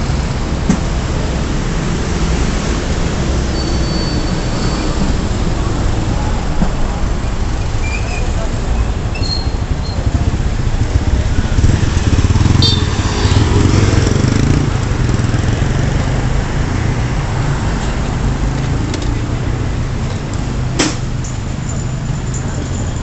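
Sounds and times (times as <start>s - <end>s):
rumble of traffic engines: 0.0s - 23.0s
motorcycle passing: 9.6s - 17.0s.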